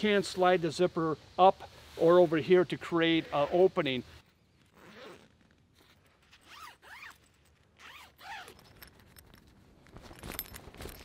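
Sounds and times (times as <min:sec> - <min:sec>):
zipper sliding: 0:04.6 - 0:08.8.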